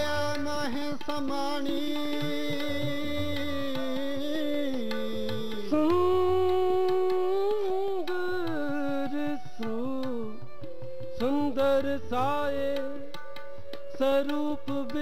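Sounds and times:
soft tabla strokes: 0:00.0 - 0:15.0.

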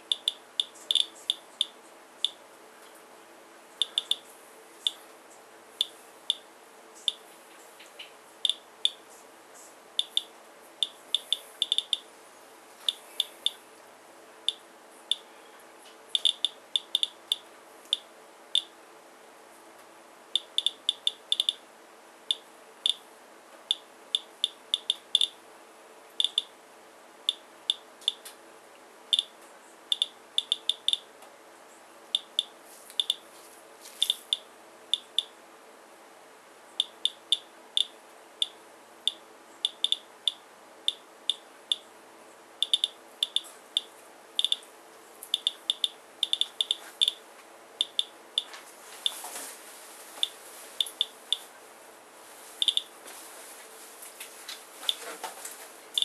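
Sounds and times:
geiger counter chirping: 0:00.0 - 0:02.4, 0:03.8 - 0:04.2, 0:08.4 - 0:09.0, 0:10.0 - 0:12.0, 0:16.2 - 0:18.7, 0:20.4 - 0:21.6, 0:22.3 - 0:23.0, 0:23.7 - 0:25.4, 0:26.2 - 0:26.5, 0:29.9 - 0:31.0, 0:32.2 - 0:33.2, 0:35.0 - 0:35.3, 0:36.8 - 0:41.8, 0:42.6 - 0:44.6, 0:45.3 - 0:47.2, 0:47.8 - 0:48.5.

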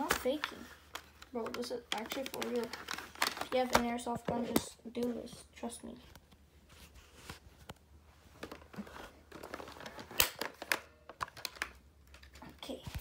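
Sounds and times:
phone handling rustle: 0:00.0 - 0:04.6.

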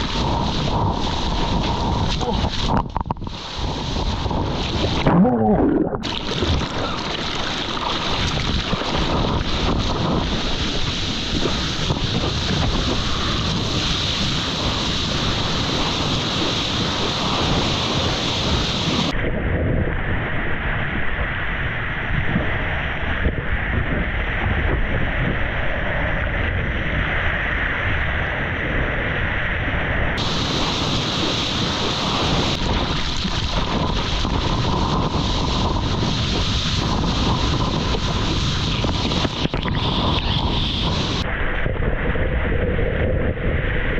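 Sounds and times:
surf and whitewater splashing: 0:00.0 - 0:19.2, 0:30.2 - 0:42.4
wind buffeting microphone: 0:00.0 - 0:43.9.

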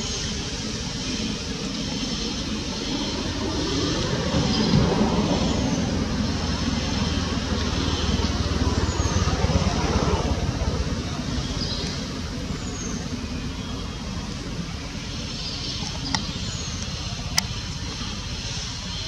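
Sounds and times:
low outdoor rumble: 0:00.0 - 0:19.0.

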